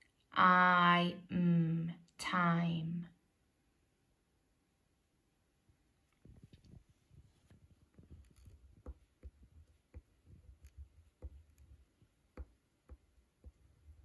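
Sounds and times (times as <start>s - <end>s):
pen writing on paper: 8.2s - 13.6s.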